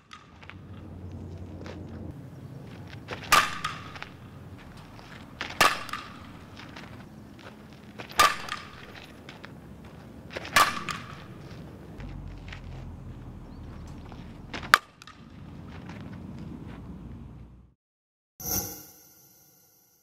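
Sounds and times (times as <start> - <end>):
softball bat hitting balls: 0.0 - 0.8, 2.7 - 12.0, 14.5 - 15.5.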